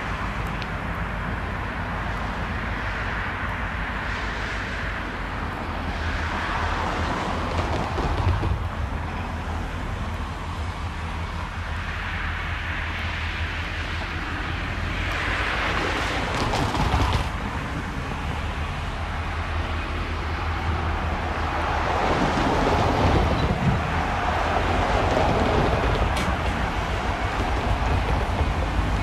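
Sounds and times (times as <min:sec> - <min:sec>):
locomotive engine humming: 0:00.0 - 0:29.0
wheels rolling on rails: 0:00.0 - 0:29.0
wind buffeting microphone: 0:04.2 - 0:11.5, 0:13.6 - 0:29.0.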